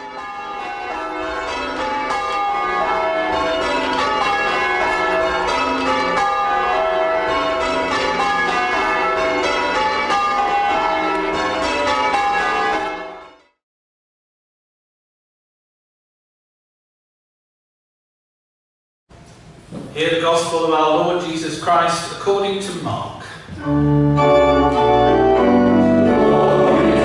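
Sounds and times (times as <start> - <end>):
church bells ringing: 0.0 - 13.6, 23.6 - 27.0.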